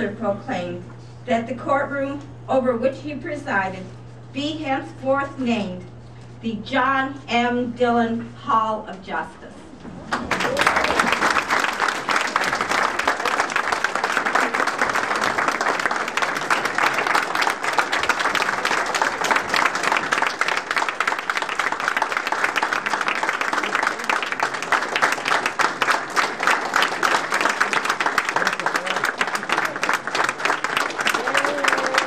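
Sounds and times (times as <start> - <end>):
audience applauding: 10.1 - 32.0.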